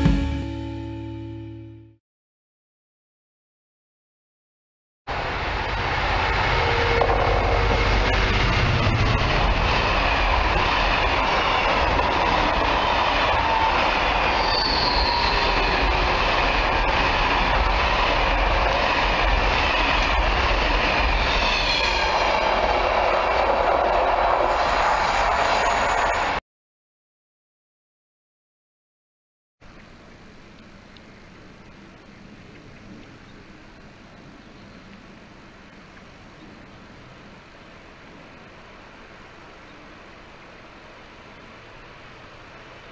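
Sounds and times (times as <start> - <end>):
diesel locomotive passing: 5.1 - 26.4
wagons rumbling over rails: 5.1 - 26.4
high squeal: 13.6 - 16.0, 21.0 - 23.2, 24.4 - 26.4.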